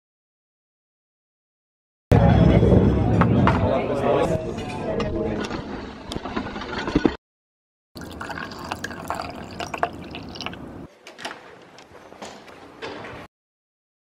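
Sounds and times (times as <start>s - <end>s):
water poured into glass: 8.0s - 10.9s.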